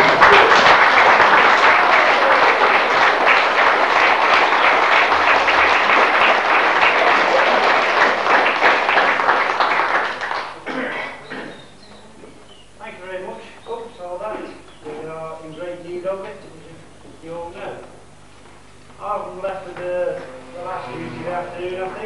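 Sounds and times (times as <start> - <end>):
crowd applauding: 0.0 - 10.7, 20.1 - 21.4.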